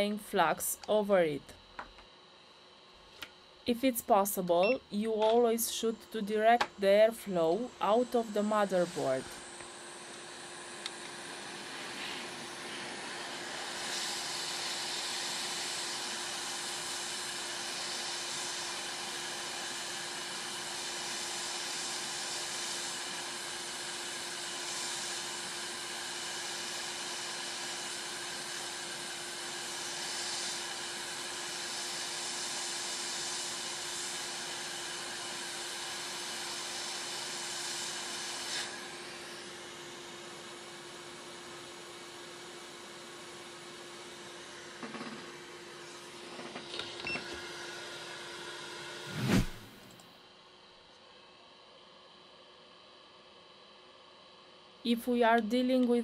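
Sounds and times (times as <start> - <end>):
steady hum: 0.0 - 12.7
hot air hissing: 8.3 - 18.7, 29.6 - 34.4.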